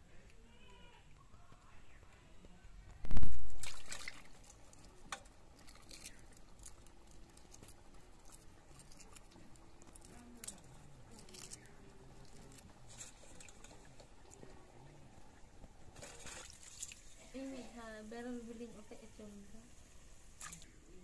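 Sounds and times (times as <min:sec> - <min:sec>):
eggshell cracking and peeling: 0:03.0 - 0:13.8.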